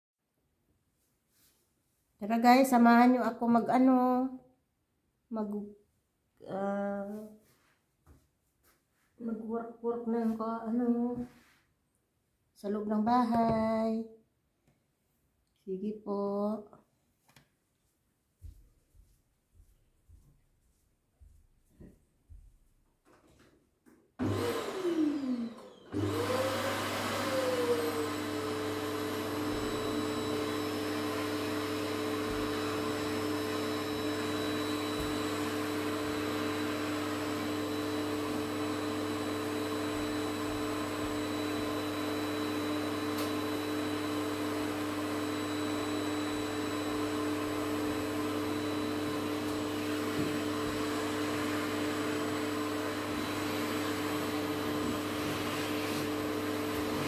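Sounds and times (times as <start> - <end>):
vacuum cleaner motor running: 24.2 - 57.0.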